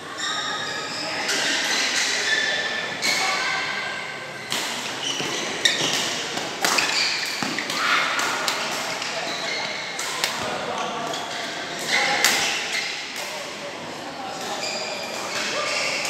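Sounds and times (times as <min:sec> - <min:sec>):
sneakers squeaking on court floor: 0:04.4 - 0:07.7, 0:14.5 - 0:16.0.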